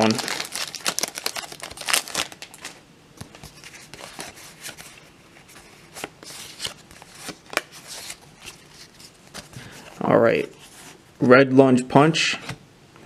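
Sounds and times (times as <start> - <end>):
wrapper crinkling: 0.0 - 4.9.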